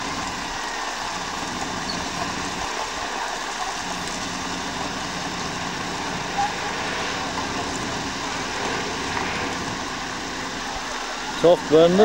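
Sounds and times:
heavy diesel engines running: 0.0 - 12.0.

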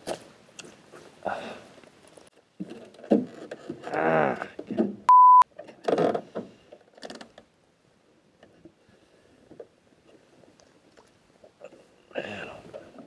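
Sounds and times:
censor bleep tone: 5.1 - 5.4.

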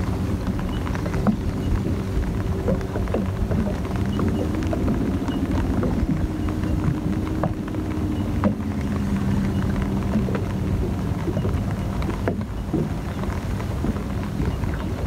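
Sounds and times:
low hum: 0.0 - 15.0
raindrop ticks: 0.0 - 15.0
wind on microphone: 0.0 - 15.0.

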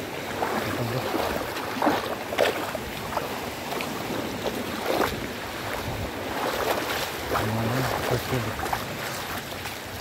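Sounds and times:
fish splashing in shallows: 0.0 - 10.0
surf washing over sand: 0.0 - 10.0
wind on microphone: 2.7 - 10.0.

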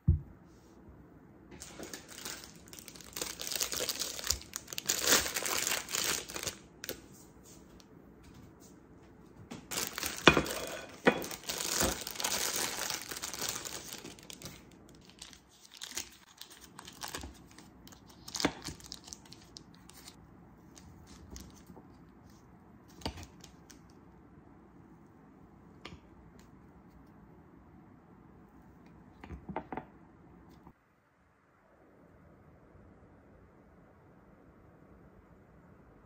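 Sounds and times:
plastic bag crinkling and tearing: 1.6 - 7.0, 9.7 - 20.2.

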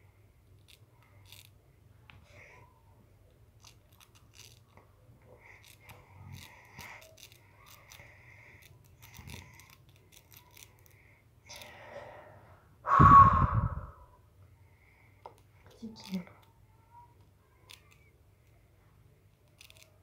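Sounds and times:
pointed tool scratching candy: 0.6 - 1.6, 3.6 - 11.8, 15.3 - 18.6, 19.2 - 20.0.

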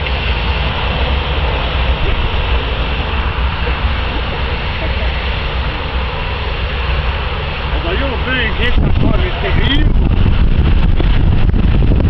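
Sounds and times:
jet engines running: 0.0 - 12.0.

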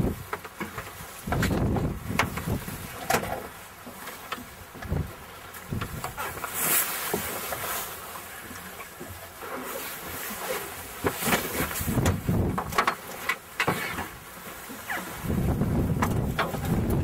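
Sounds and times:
wind buffeting microphone: 0.0 - 0.3, 1.2 - 3.0, 4.8 - 6.2, 11.6 - 12.8, 15.1 - 17.0.

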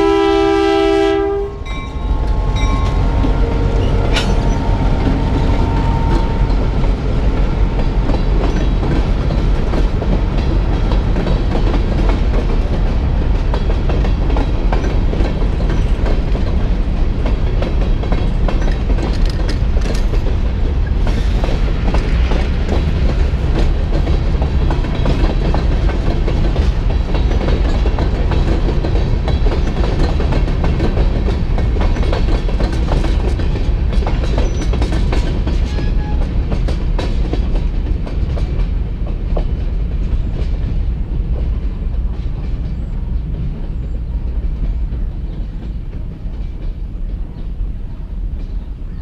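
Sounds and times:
freight train rolling past: 0.0 - 49.0
steel wheels clicking over rail joints: 1.7 - 48.9.

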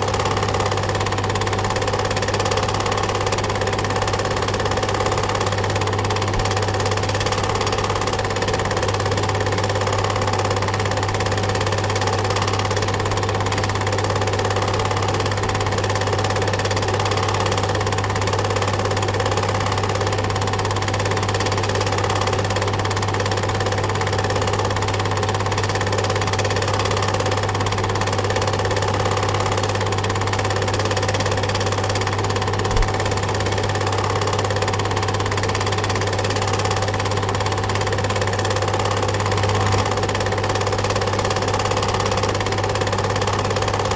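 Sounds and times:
film projector running: 0.0 - 43.9.

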